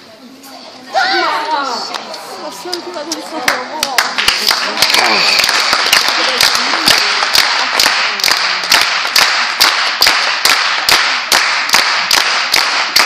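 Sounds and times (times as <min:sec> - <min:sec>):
crowd clapping in time: 0:02.7 - 0:13.0
applause: 0:03.4 - 0:13.0.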